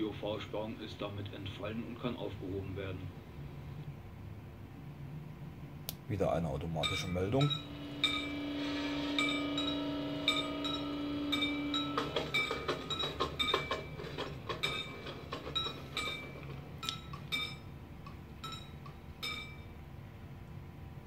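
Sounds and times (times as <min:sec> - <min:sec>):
steady hum: 0:00.0 - 0:21.0
level crossing bell ringing: 0:06.8 - 0:17.7, 0:18.4 - 0:19.8.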